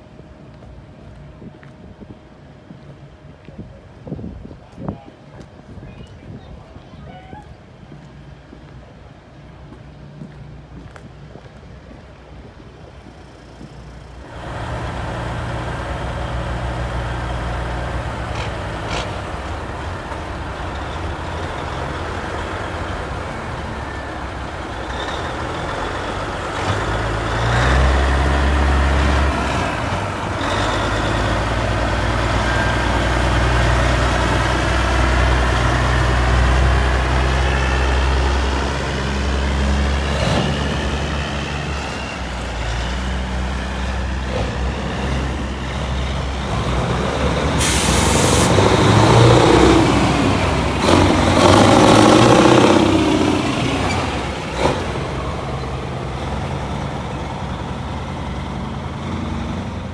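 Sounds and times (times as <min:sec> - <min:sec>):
truck diesel engine: 0:07.7 - 0:59.9
air brake hisses: 0:47.6 - 0:48.6.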